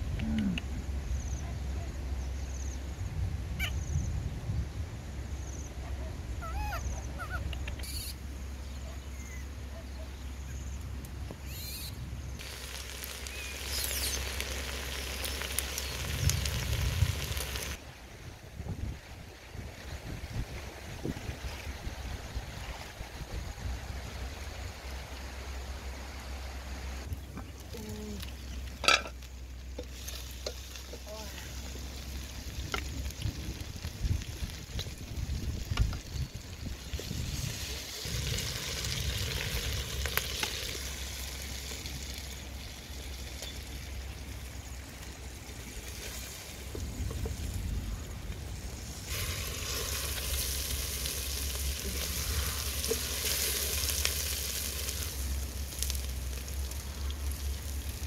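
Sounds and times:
baby monkey squeaky calls: 3.6s - 3.8s, 6.4s - 8.2s, 11.5s - 12.0s
faint sizzling: 11.4s - 17.8s, 26.9s - 58.0s
metal pot lid clanking: 28.8s - 29.2s
steady hiss: 29.0s - 58.0s.

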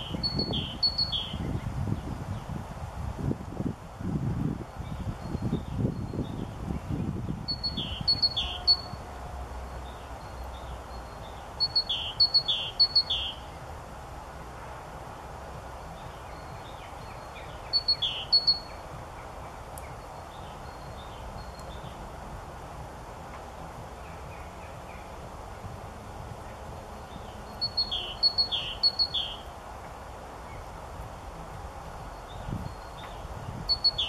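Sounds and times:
high bird chirps: 0.0s - 1.4s, 7.5s - 9.0s, 10.2s - 13.5s, 16.3s - 18.8s, 27.5s - 29.4s, 32.4s - 34.0s
steady outdoor hiss: 0.0s - 34.0s.

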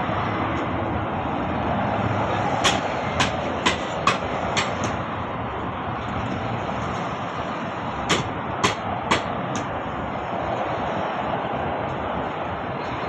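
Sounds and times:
steady background noise: 0.0s - 13.0s.

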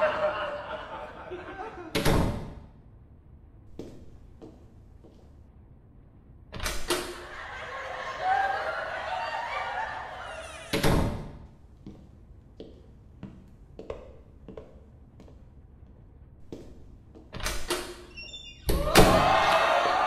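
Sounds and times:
door slamming shut: 2.0s - 2.6s, 10.7s - 11.4s, 18.6s - 19.4s.

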